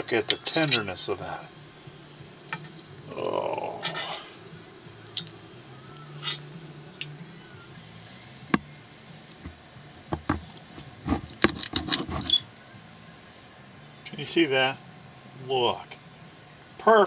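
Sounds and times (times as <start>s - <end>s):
knife and fork scraping plate: 0.4s - 0.9s, 10.1s - 12.4s.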